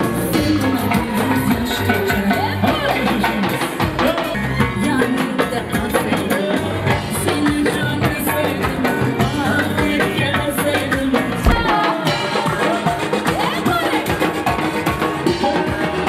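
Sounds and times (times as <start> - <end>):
person singing pop song: 0.0 - 14.5
busy drums: 5.4 - 16.0
hand percussion: 11.3 - 16.0.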